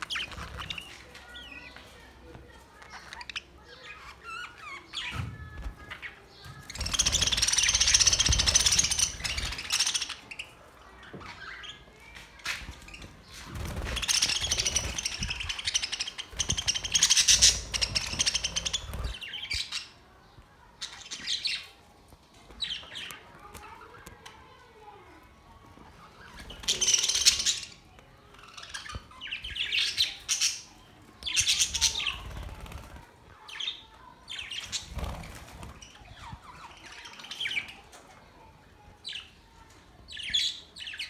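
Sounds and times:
budgerigars chattering and squawking: 6.4 - 10.6, 13.8 - 19.9.

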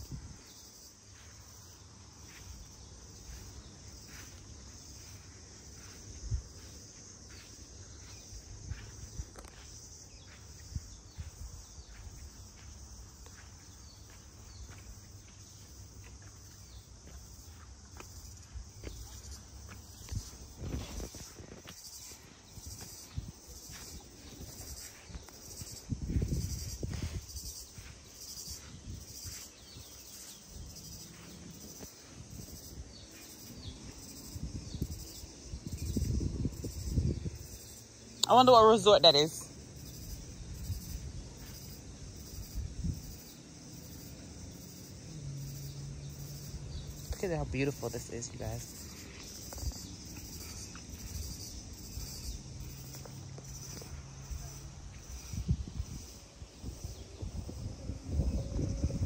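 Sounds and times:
footsteps on grass: 0.0 - 34.4
insects chirring: 0.0 - 59.0
low rumble on microphone: 54.3 - 59.0.

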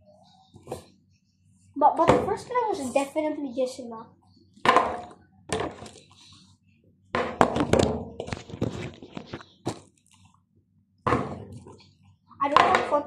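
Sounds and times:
plastic bottle thudding on table: 4.7 - 5.8, 7.2 - 8.3, 11.1 - 11.6
bottle knocks and rattles: 4.7 - 5.9, 7.2 - 8.7.

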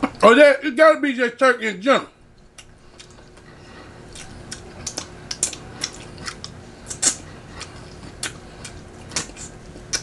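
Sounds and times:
chewing: 2.4 - 10.0.

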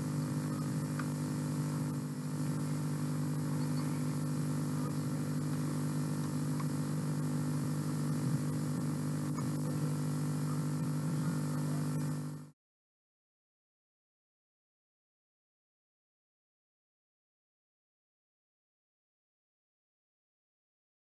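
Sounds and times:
low electrical hum: 0.0 - 12.5.

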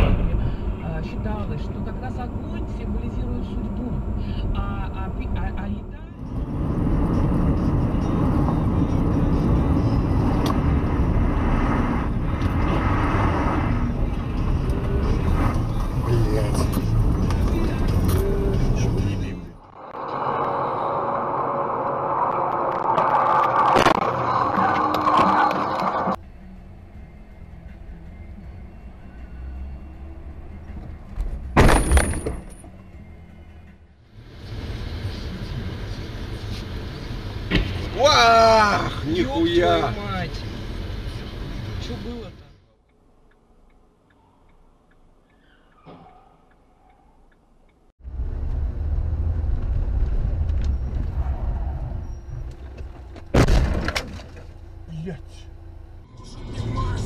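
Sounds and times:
car engine and tyre noise: 0.0 - 57.0
low road rumble: 0.0 - 57.0
car crash crunching and shattering: 23.0 - 25.5, 31.6 - 32.6, 53.3 - 54.5.

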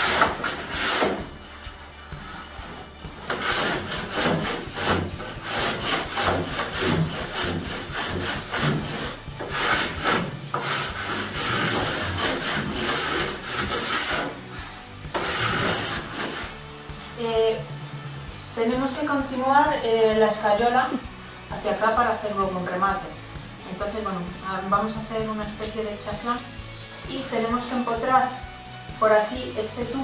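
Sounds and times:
hand rasp scraping plaster: 0.0 - 16.7, 26.4 - 28.5.

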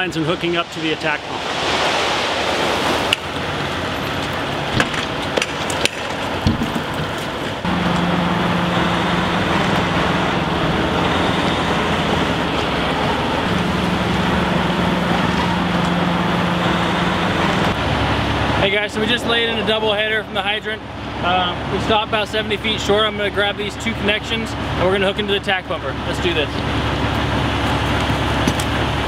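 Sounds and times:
outdoor hiss: 0.0 - 4.8
diesel engine humming: 0.0 - 29.0.

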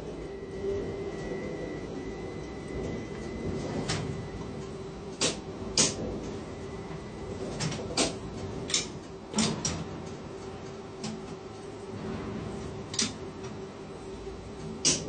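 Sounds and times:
crane mechanical hum: 0.0 - 15.0
sharp clicks and knocks: 14.6 - 15.0.

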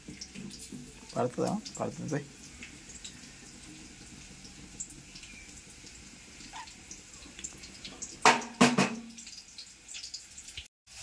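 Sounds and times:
sharp loud knocks: 8.2 - 9.1.

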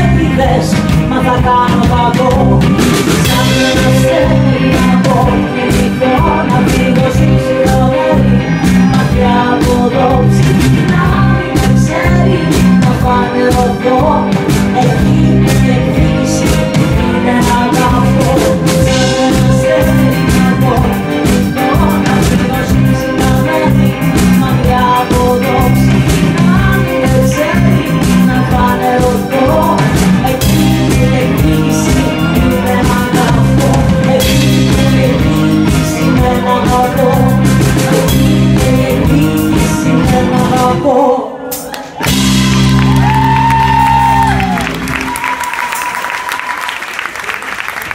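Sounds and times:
woman singing: 0.0 - 46.6
drums: 0.0 - 47.9
electric guitar: 0.0 - 47.9.

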